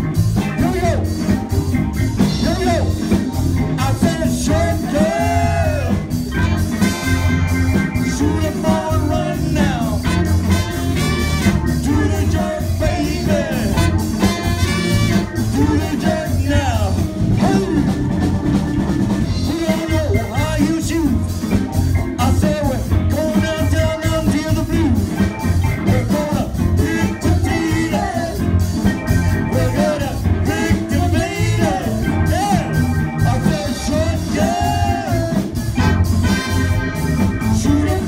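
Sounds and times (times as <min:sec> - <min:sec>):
live band with horns: 0:00.0 - 0:38.0
man singing into microphone: 0:02.3 - 0:03.0, 0:03.8 - 0:06.1, 0:08.1 - 0:10.2, 0:11.8 - 0:14.0, 0:15.5 - 0:18.0, 0:19.3 - 0:21.4, 0:22.2 - 0:25.0, 0:25.8 - 0:28.5, 0:29.5 - 0:35.9, 0:37.5 - 0:38.0.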